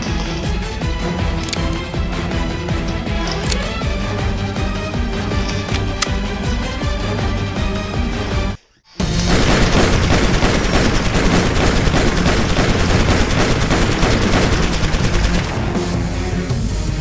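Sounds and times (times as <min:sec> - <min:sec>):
music: 0:00.0 - 0:17.0
automatic gunfire: 0:09.2 - 0:15.7.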